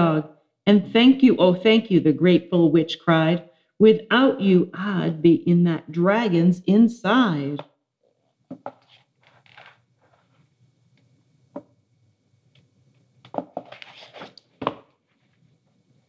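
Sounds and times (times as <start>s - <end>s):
paper pages rustling: 8.5s - 10.4s, 13.3s - 15.3s.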